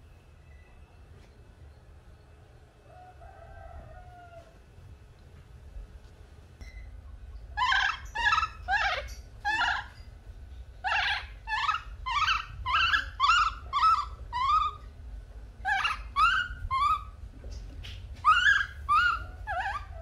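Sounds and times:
baby monkey crying: 7.6 - 10.1, 10.8 - 14.9, 15.6 - 17.2, 18.2 - 20.0.

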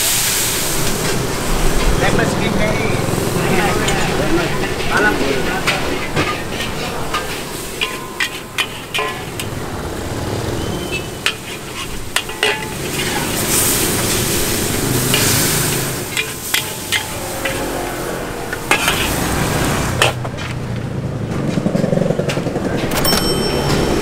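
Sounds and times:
stir-fry sizzling: 0.0 - 20.2
spatula scraping and clacking on wok: 3.1 - 20.6.

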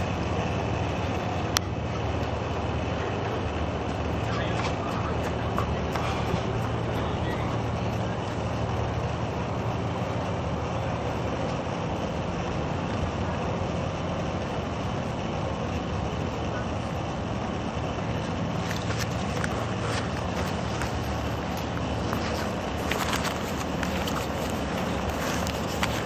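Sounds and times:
outdoor background rumble and hiss: 0.0 - 26.0.

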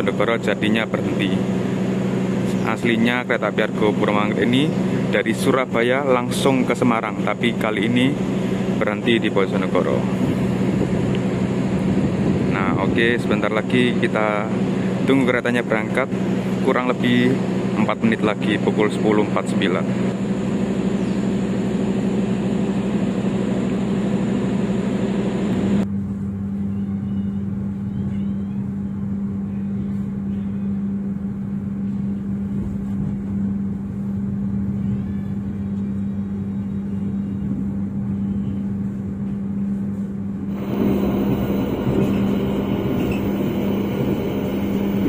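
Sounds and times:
train engine idling hum: 0.0 - 45.0
high hiss: 40.5 - 45.0.

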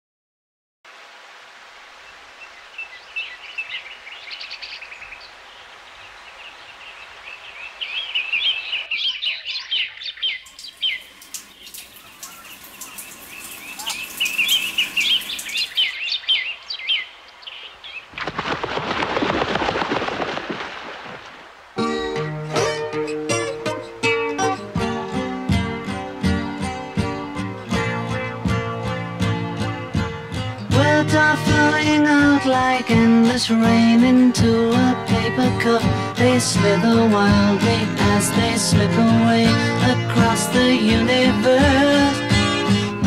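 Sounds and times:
small birds chirping: 2.0 - 18.4.

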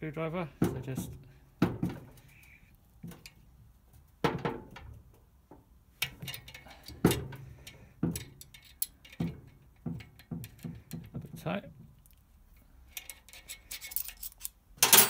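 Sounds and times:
hand tools clinking on metal: 6.0 - 10.6, 13.0 - 15.0.

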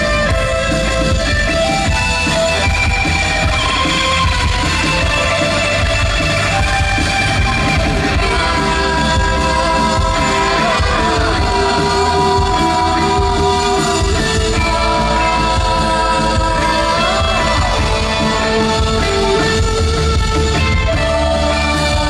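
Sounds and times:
rock band playing live: 0.0 - 22.0
man singing: 8.0 - 19.7.

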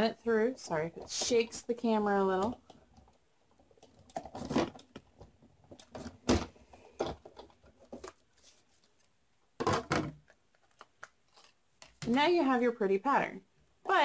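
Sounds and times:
plastic plates clunking: 9.6 - 10.3.

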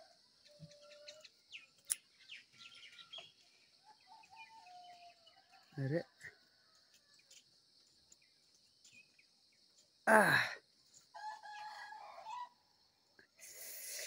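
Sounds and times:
man sighing: 10.1 - 10.6
rooster crowing: 11.1 - 12.6
high insect drone: 13.4 - 14.0.

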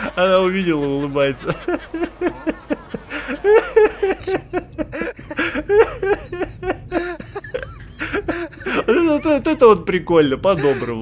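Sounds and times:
high-pitched giggles: 3.3 - 9.6.

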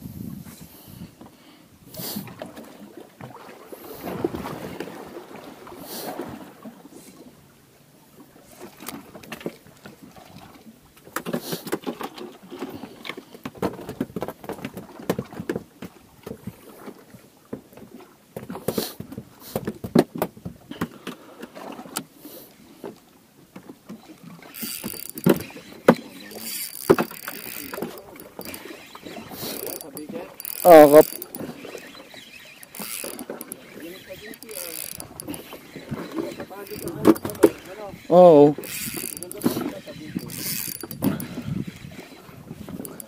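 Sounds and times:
gear knocking and clattering: 26.4 - 28.6, 40.2 - 41.3.

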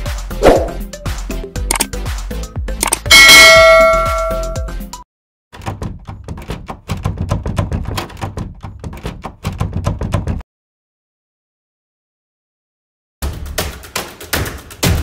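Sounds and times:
typewriter clicks: 2.8 - 3.1
notification bell chime: 3.1 - 4.7.

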